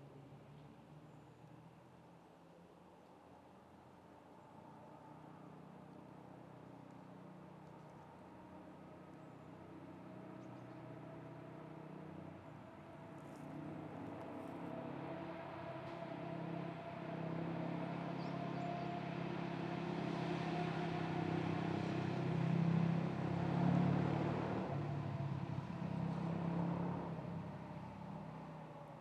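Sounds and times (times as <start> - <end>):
vehicle engine passing: 11.1 - 28.7.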